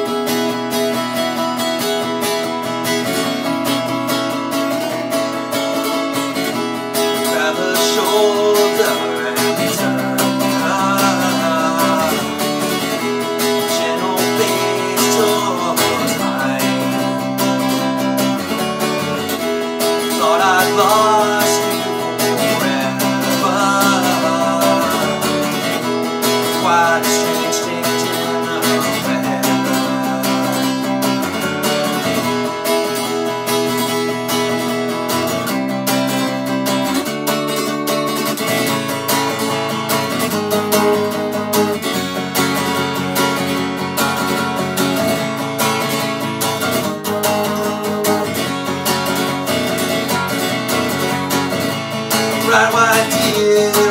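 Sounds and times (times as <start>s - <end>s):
acoustic guitar strumming chords: 0.0s - 53.9s.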